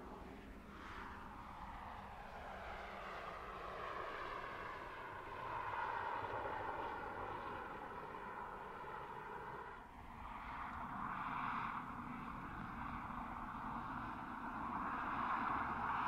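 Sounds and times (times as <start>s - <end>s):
road noise: 4.5s - 16.0s.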